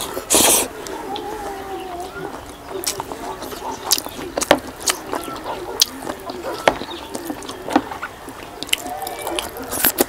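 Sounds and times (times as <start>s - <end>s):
wet chewing and lip-smacking: 2.2s - 10.0s.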